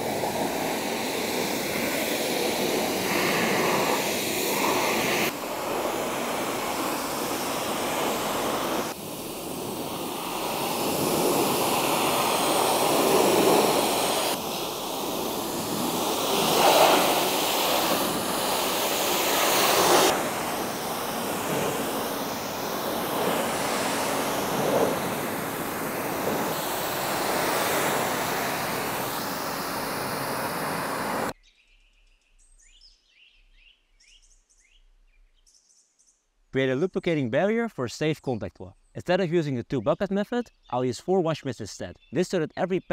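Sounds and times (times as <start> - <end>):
pressure washer spraying water: 0.0 - 31.3
faint bird chirps: 31.4 - 36.3.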